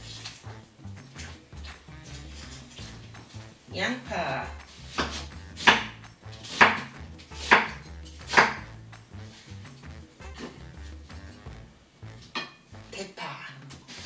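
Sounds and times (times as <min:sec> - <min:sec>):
knife chopping onion on board: 0:04.5 - 0:11.2.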